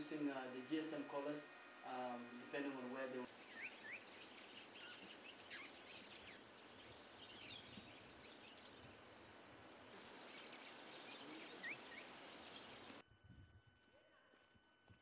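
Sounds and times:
steady hiss: 0.0s - 13.0s
distant bird calls: 2.2s - 13.0s.

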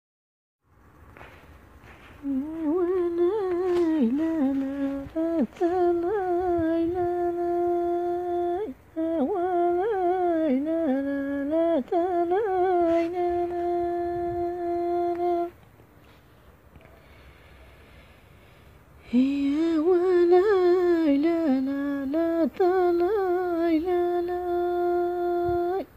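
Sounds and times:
high voice humming a melody: 2.2s - 15.6s.

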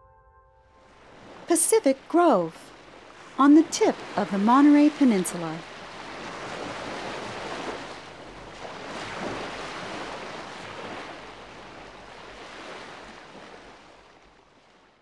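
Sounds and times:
ocean surf breaking: 0.8s - 14.8s.

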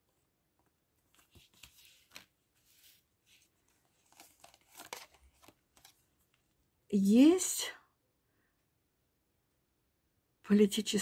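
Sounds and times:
cards rustling and tapping: 0.6s - 6.4s.

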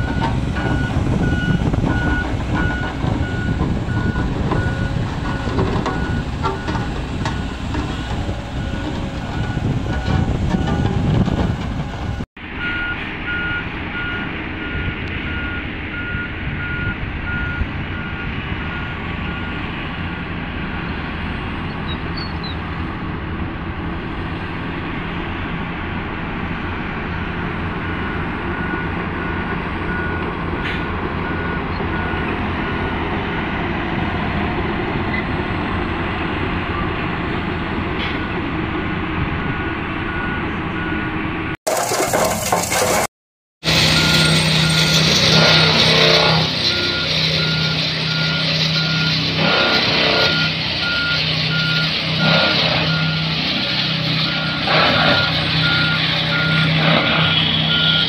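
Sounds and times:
heavy diesel engines rumbling: 0.0s - 58.0s
reverse warning alarm beeping: 8.6s - 19.6s, 43.7s - 53.4s, 54.2s - 58.0s.

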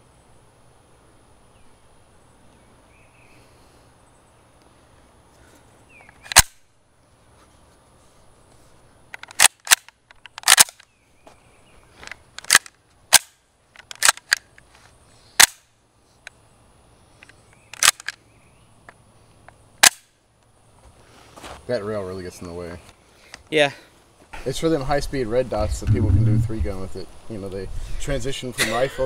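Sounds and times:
metallic gun bolt clacks: 9.2s - 10.9s, 12.4s - 14.5s, 17.7s - 18.2s.

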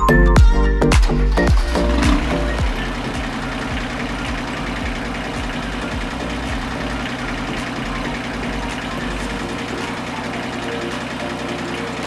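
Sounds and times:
diesel engine idling: 1.2s - 12.0s.

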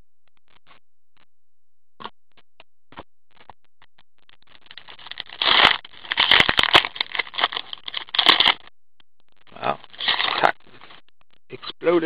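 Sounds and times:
foil wrapper crinkling: 4.5s - 8.6s, 10.0s - 10.5s.

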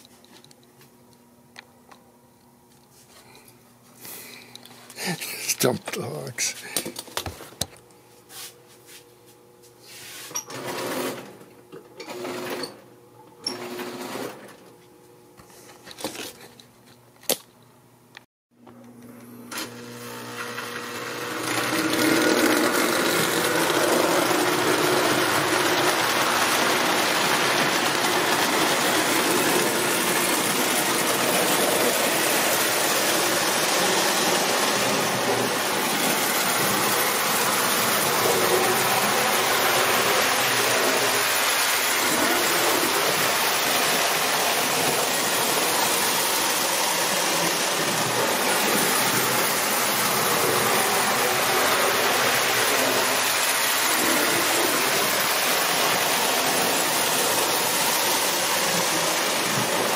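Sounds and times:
toy train whirring and clattering: 10.3s - 11.4s, 13.5s - 14.6s, 20.3s - 59.9s.

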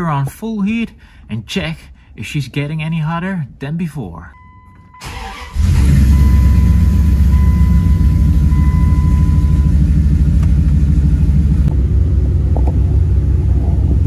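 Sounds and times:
truck engine idling: 5.0s - 14.0s.

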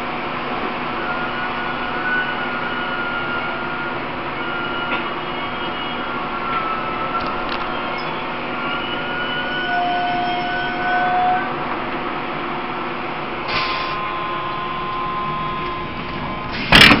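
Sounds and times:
train running noise: 0.0s - 17.0s
short hiss: 13.5s - 14.0s
faint whining tones: 13.7s - 16.8s.

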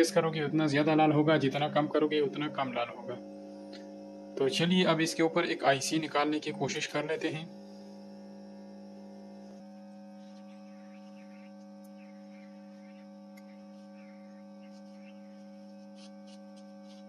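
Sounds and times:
hot air gun blowing with hum: 7.2s - 17.0s.

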